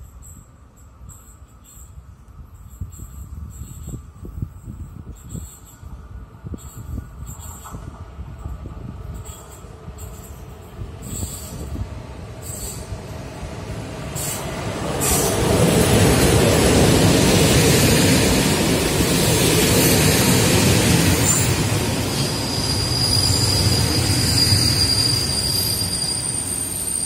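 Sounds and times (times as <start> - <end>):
train wheel squeal: 0.0 - 27.0
passenger train rolling past: 3.6 - 27.0.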